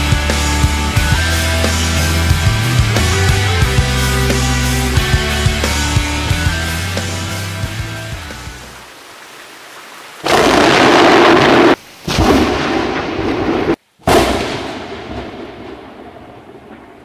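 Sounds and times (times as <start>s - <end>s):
rain hissing: 0.2s - 17.0s
loud thunder: 10.2s - 17.0s.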